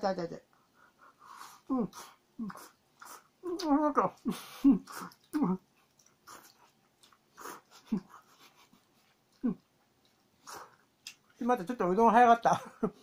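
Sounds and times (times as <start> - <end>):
chewing: 1.4 - 11.4.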